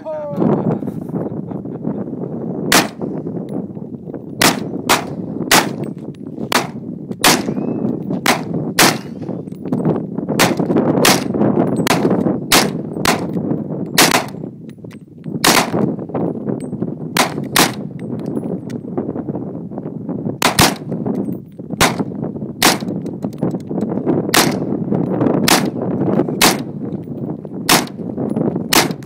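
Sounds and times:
rifle shots: 2.7s - 3.0s, 4.4s - 5.9s, 6.5s - 9.2s, 10.4s - 13.4s, 14.0s - 14.4s, 15.4s - 15.9s, 17.2s - 17.9s, 20.4s - 20.9s, 21.8s - 23.0s, 24.3s - 24.7s, 25.4s - 25.8s, 26.4s - 26.8s, 27.7s - 28.0s, 28.7s - 29.0s.

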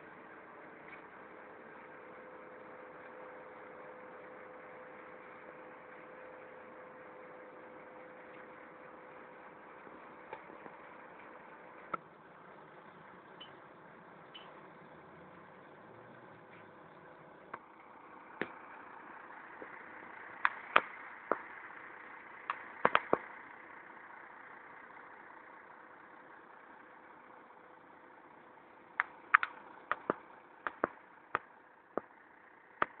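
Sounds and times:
diesel truck engine running: 0.0s - 33.0s
sharp clicks and clanks: 22.5s - 23.3s, 29.0s - 32.1s.

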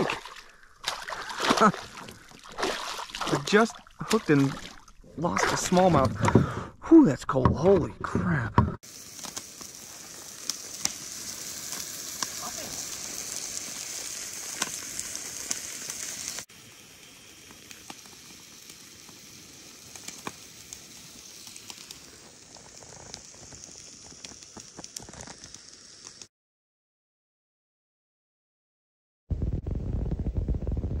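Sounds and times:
campfire popping and crackling: 0.0s - 6.6s, 8.8s - 26.3s, 29.3s - 31.0s
steak sizzling in a skillet: 8.8s - 26.3s.

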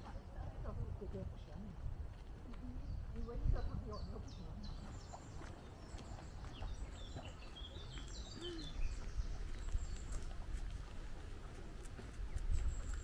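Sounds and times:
small birds chirping: 2.4s - 13.0s.

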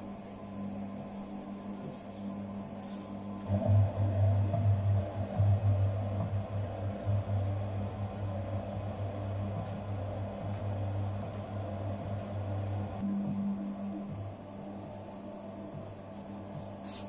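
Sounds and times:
dough mixer motor humming: 3.5s - 13.0s.

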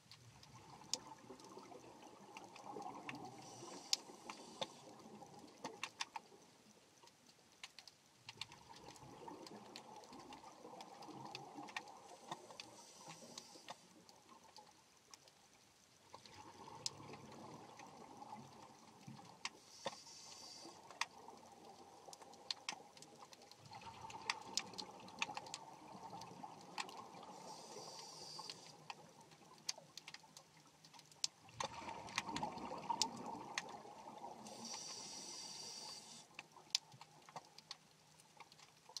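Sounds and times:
underwater clicks and crackles: 0.0s - 39.0s
regulator breathing hiss: 3.4s - 4.9s, 12.6s - 13.9s, 19.6s - 20.8s, 27.3s - 28.8s, 34.4s - 36.3s.

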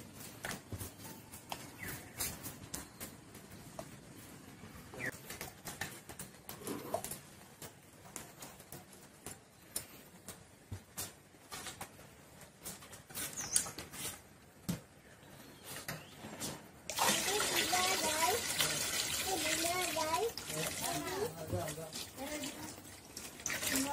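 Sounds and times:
bird chirps: 13.3s - 13.8s.

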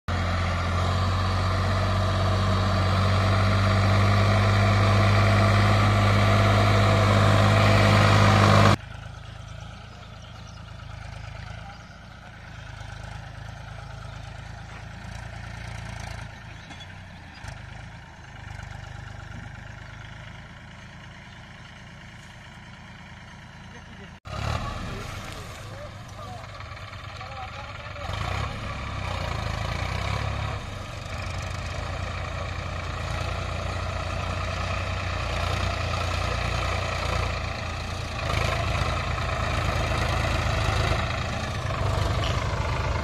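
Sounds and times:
distant tractor engines: 0.1s - 43.0s
tractor diesel engine running: 0.1s - 43.0s.

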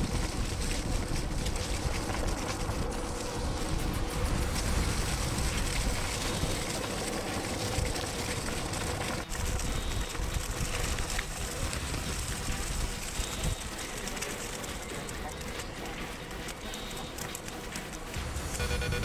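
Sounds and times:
wind buffeting microphone: 0.0s - 13.8s
skateboard wheels rolling on asphalt: 0.0s - 18.6s.

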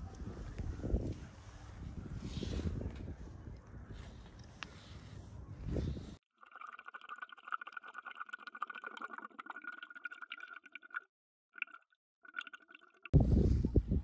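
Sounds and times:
underwater crackling and bubbling: 6.4s - 11.0s, 11.6s - 13.1s.

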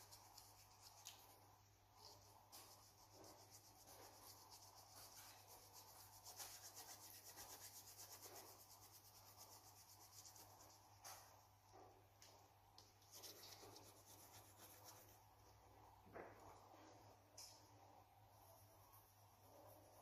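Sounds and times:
coloured pencil scratching on paper: 2.0s - 11.2s, 13.1s - 15.4s, 18.4s - 20.0s.

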